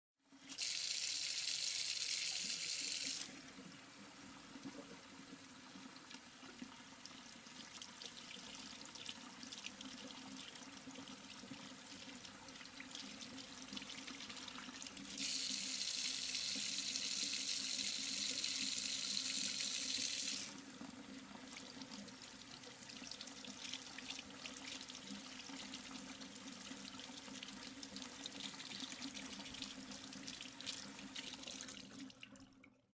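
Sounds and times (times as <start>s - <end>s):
tap water rushing into sink: 8.4s - 22.8s.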